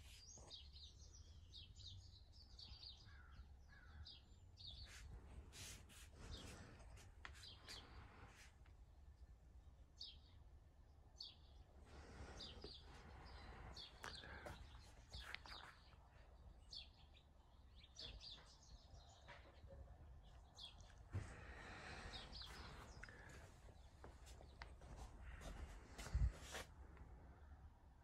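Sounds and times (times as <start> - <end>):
soft rustling: 4.8 - 8.7, 21.0 - 27.0.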